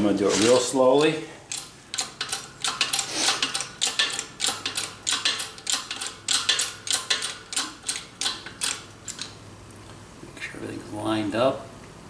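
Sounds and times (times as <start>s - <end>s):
shop press metallic clicks: 0.4s - 9.3s.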